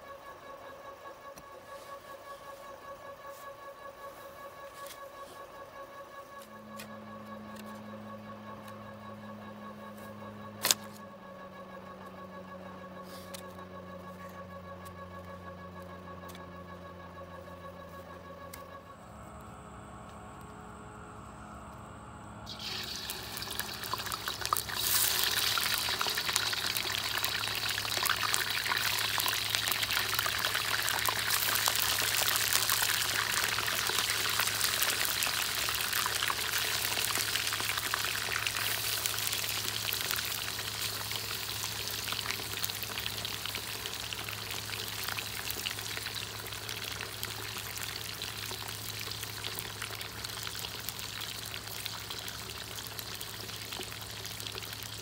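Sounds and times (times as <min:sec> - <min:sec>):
chicken sizzling in hot oil: 0:22.5 - 0:55.0.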